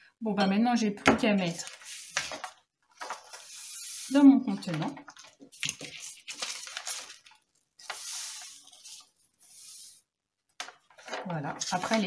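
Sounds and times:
paper rustling: 0:01.4 - 0:03.7, 0:04.6 - 0:12.0
salt sliding into a jar: 0:07.8 - 0:10.0.

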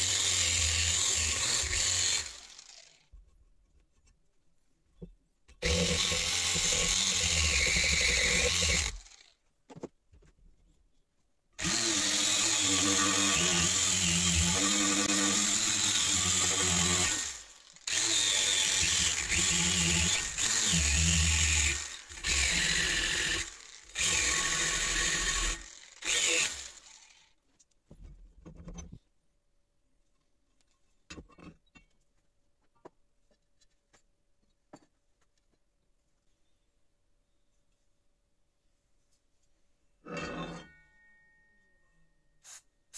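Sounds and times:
wire brush grinder scrubbing metal: 0:00.0 - 0:03.0, 0:05.6 - 0:09.2, 0:11.6 - 0:26.8.

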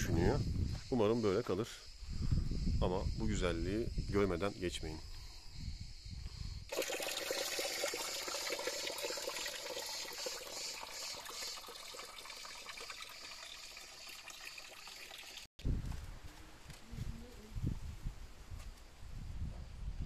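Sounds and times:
water trickling into stone basin: 0:06.7 - 0:15.5.

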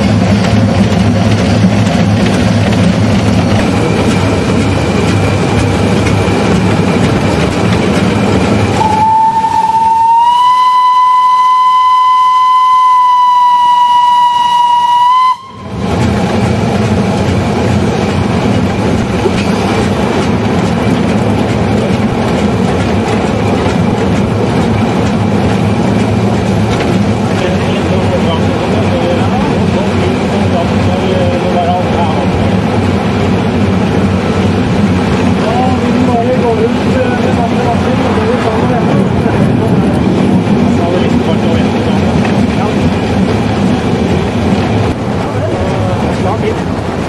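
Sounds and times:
steam locomotive running noise: 0:00.0 - 0:47.0
steam locomotive whistle: 0:08.8 - 0:15.8.

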